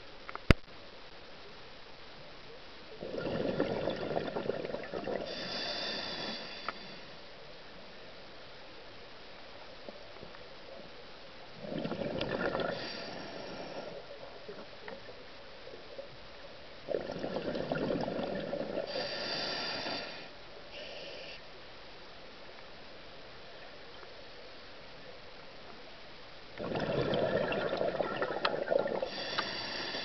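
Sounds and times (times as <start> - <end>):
exhaled bubbles underwater: 3.0 - 5.5, 11.6 - 15.1, 16.9 - 19.2, 26.6 - 29.3
regulator hiss: 5.2 - 7.3, 12.7 - 14.3, 18.8 - 21.5, 29.0 - 30.0.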